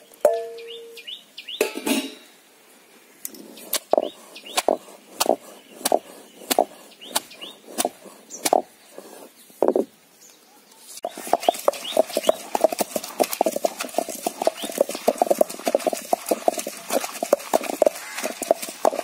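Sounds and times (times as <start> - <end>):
faint bird chirps: 0.0 - 1.7
stone pestle pounding in mortar: 11.1 - 19.0.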